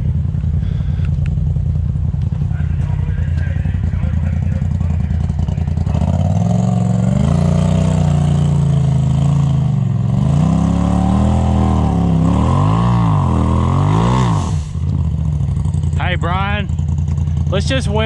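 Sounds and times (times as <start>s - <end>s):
engine revving under load: 4.5s - 15.6s.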